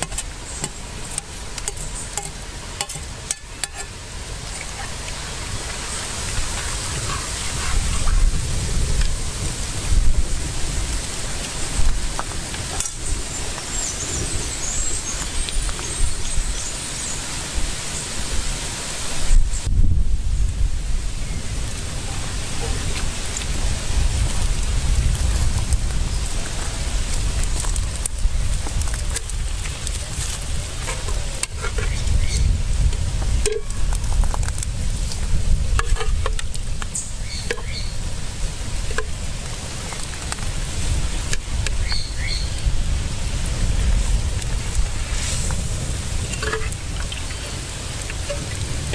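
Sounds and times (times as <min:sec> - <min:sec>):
metal spoon scraping pot: 0:00.0 - 0:04.9, 0:35.8 - 0:36.4, 0:46.3 - 0:46.8
wind on microphone: 0:00.0 - 0:48.9.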